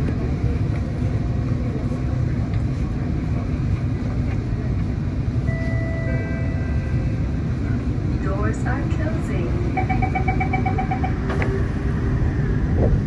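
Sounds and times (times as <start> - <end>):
low rumble of vehicle: 0.0 - 13.0
electronic tone: 9.7 - 11.3.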